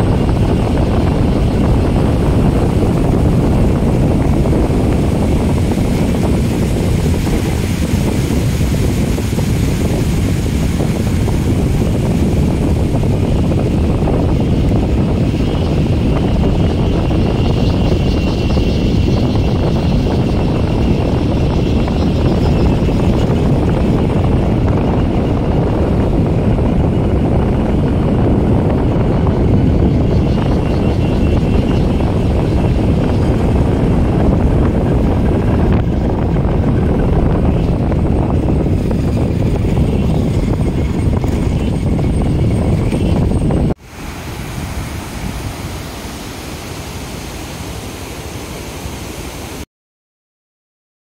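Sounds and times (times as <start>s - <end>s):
wind rushing over microphone: 0.0s - 49.7s.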